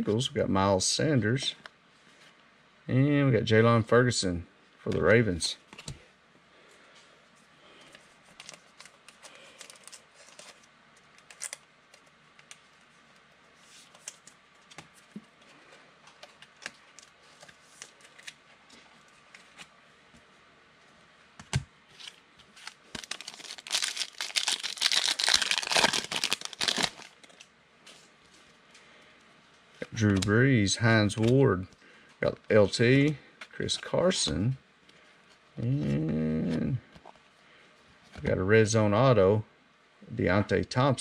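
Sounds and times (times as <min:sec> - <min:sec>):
foil wrapper crinkling and tearing: 0:08.3 - 0:12.5, 0:22.0 - 0:27.5.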